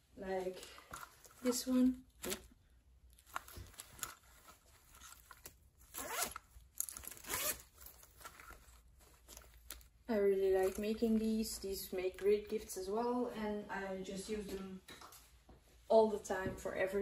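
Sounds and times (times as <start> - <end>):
fabric zipper being pulled: 5.9 - 6.4, 7.1 - 7.8.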